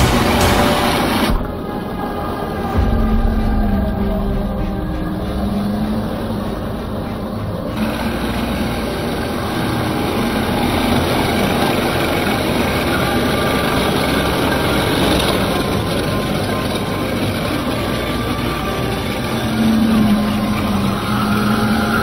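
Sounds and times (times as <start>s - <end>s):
water churning: 0.0s - 22.0s.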